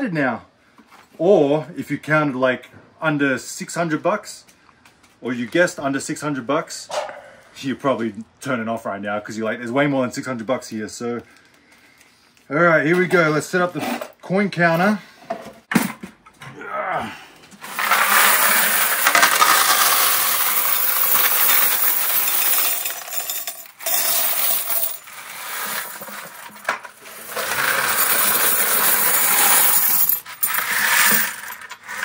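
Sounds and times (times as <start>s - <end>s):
coins clinking into a tray: 17.6s - 32.0s.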